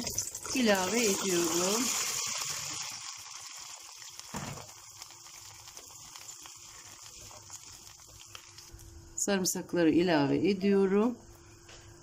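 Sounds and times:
brine bubbling in a pot: 0.0s - 8.9s.

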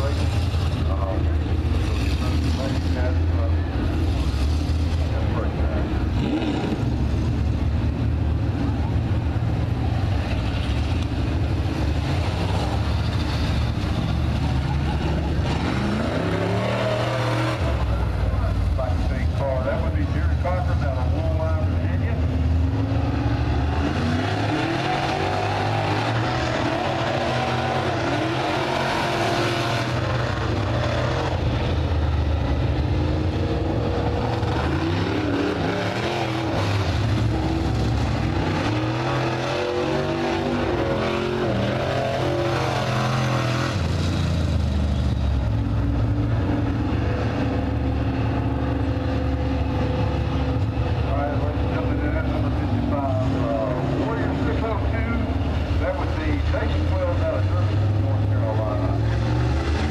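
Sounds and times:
race car engines revving: 0.0s - 59.9s.

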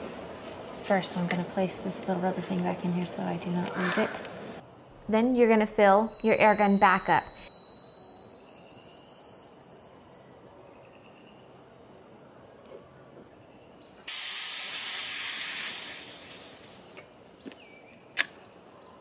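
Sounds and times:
thin whistle of air filling: 4.9s - 12.7s
hiss of escaping air: 14.1s - 16.8s.

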